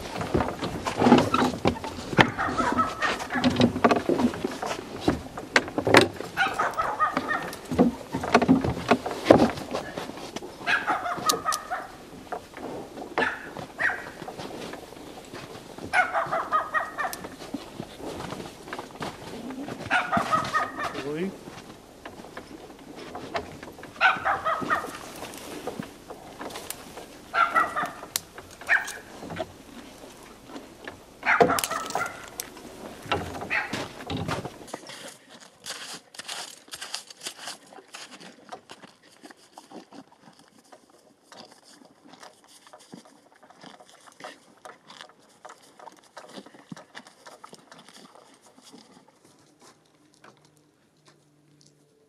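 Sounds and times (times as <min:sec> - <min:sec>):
horses tearing and chewing grass: 0:00.0 - 0:52.0
short animal calls: 0:02.2 - 0:03.5, 0:19.4 - 0:21.0, 0:24.0 - 0:25.2.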